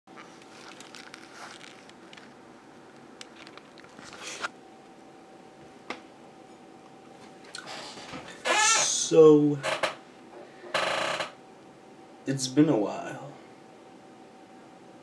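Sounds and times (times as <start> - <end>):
soft rustling: 0.1 - 2.4
faint steady hum: 0.1 - 15.0.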